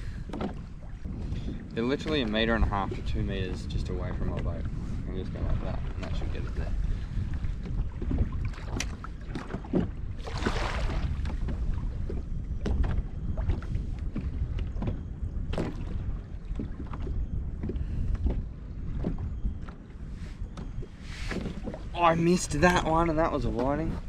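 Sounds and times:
water lapping: 0.0s - 24.0s
wind rumbling on microphone: 0.0s - 24.0s
light knocks against hull: 0.2s - 4.7s, 5.4s - 6.6s, 7.2s - 19.9s.

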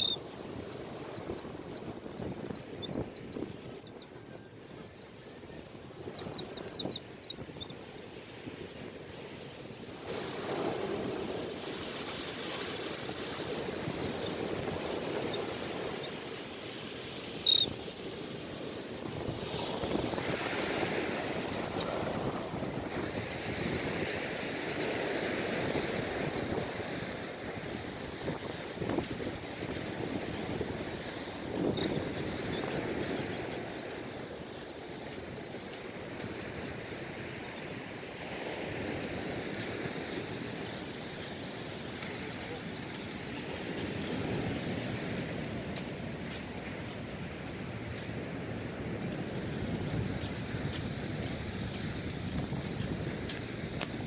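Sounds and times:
gulls and terns calling: 0.0s - 38.2s.

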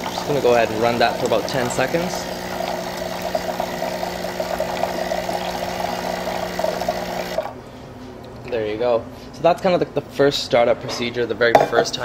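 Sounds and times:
espresso machine pump humming: 0.0s - 7.6s
hot water flowing into pitcher: 0.0s - 7.6s.

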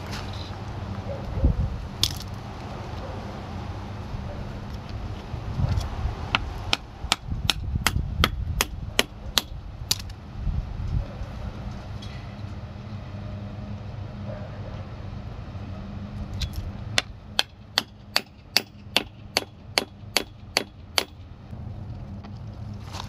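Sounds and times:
hammer striking wooden stake: 6.3s - 10.1s, 16.4s - 21.2s.

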